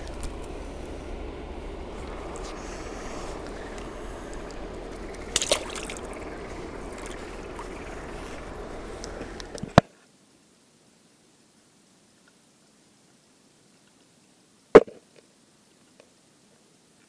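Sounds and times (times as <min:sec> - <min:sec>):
fish slapping water: 0:00.0 - 0:09.8
water sloshing and splashing: 0:00.0 - 0:09.8.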